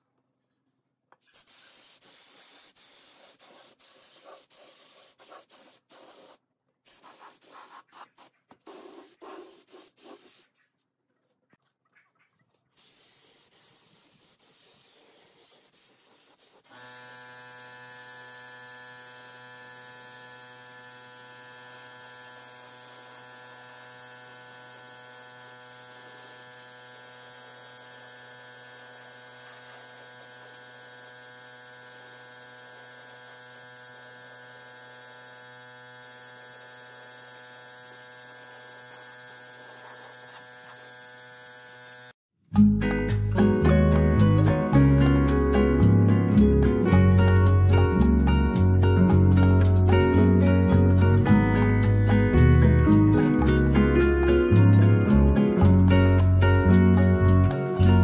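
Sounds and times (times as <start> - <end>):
spray gun hissing in bursts: 1.2 - 10.5, 12.8 - 42.2.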